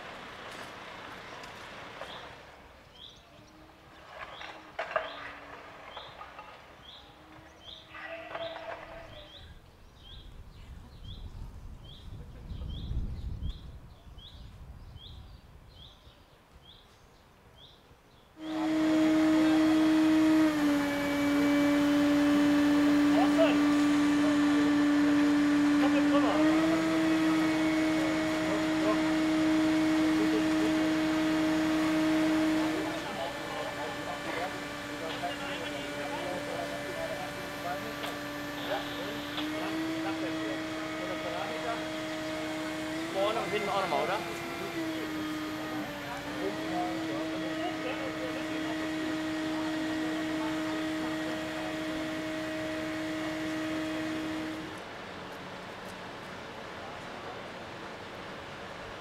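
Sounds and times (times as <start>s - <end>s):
engine and hydraulic drive humming: 18.4s - 59.0s.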